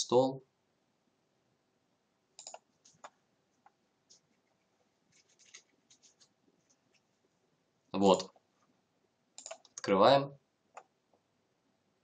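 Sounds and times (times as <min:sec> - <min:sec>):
computer mouse clicks: 0:02.4 - 0:06.3, 0:09.4 - 0:09.8.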